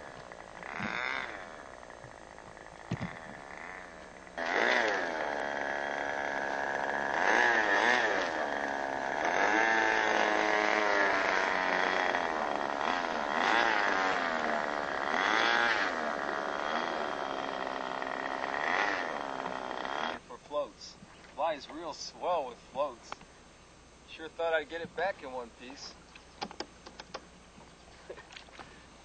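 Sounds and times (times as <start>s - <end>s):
model plane engine buzzing: 0.0s - 20.3s.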